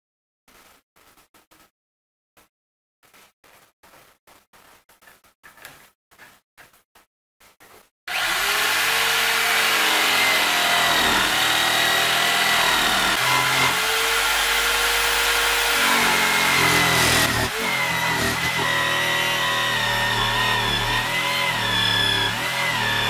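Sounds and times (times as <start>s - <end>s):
power tool cutting wood: 8.1s - 23.0s.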